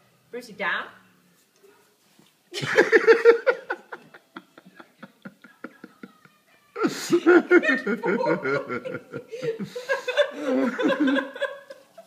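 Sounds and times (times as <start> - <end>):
woman laughing: 2.5 - 12.0.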